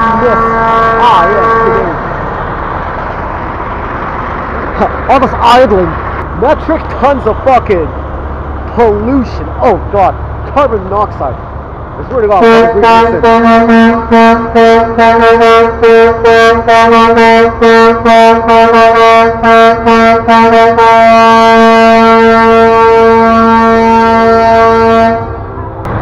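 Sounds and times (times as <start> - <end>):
truck air horn blasts: 0.0 - 2.1, 12.3 - 25.8.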